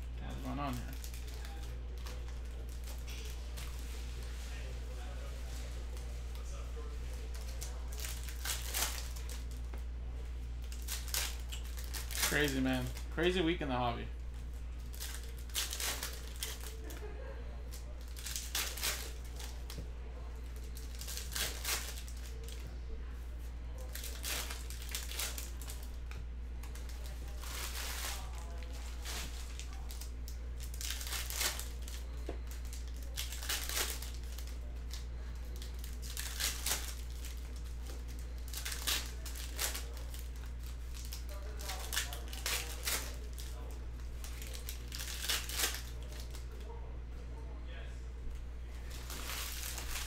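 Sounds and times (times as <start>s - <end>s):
low electrical hum: 0.0s - 50.0s
wrappers tearing and crinkling: 0.2s - 4.7s, 5.4s - 9.7s, 10.6s - 22.7s, 23.7s - 46.7s, 48.7s - 50.0s.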